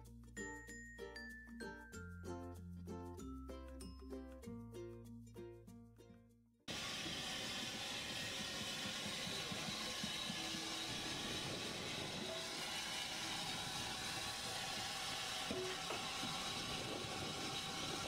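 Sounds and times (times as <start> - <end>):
steam locomotive hissing steam: 6.7 - 18.0.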